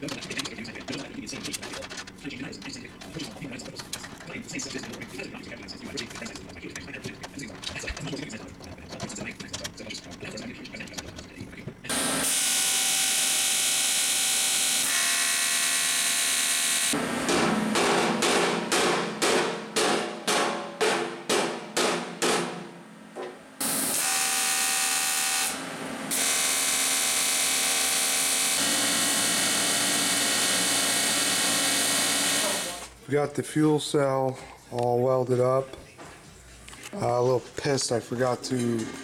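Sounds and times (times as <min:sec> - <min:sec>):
arc welder buzzing: 0:11.9 - 0:18.2, 0:23.6 - 0:33.0.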